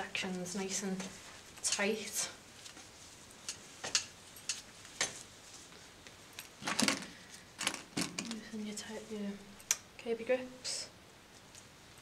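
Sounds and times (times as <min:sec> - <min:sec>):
handling rustle: 0:00.2 - 0:09.2.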